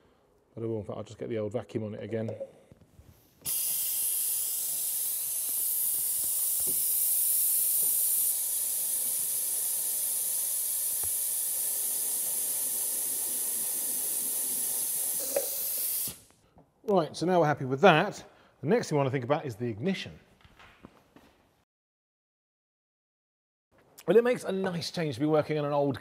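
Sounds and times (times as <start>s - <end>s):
vacuum cleaner hissing: 3.4s - 16.4s.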